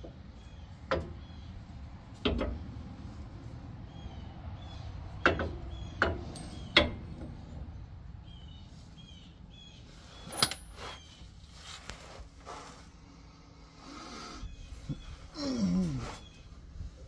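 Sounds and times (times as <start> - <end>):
small birds chirping: 0.0 - 1.8, 3.8 - 7.0, 7.8 - 11.4, 14.2 - 17.0.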